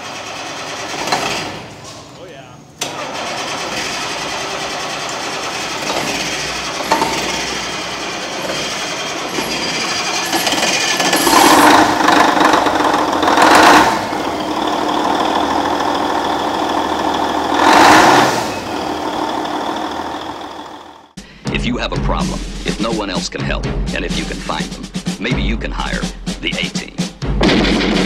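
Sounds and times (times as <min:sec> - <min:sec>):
diesel engine running: 0:02.8 - 0:21.2.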